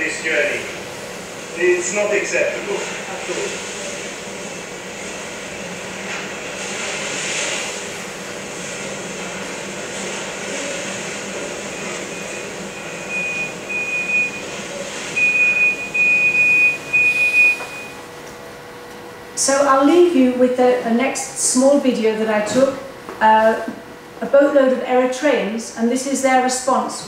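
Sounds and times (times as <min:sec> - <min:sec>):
rushing noise over speakers: 0:00.0 - 0:27.0
pulsing high tone: 0:15.2 - 0:18.0.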